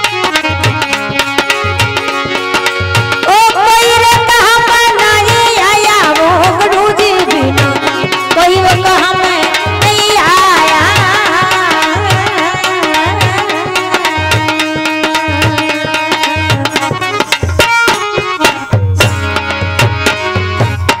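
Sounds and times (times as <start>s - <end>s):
harmonium: 0.0s - 21.0s
hand drum beat: 5.1s - 21.0s.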